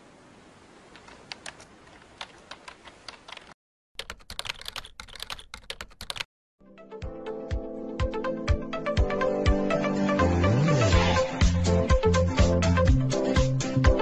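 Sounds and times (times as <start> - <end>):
typing on computer keyboard: 1.0 - 6.3.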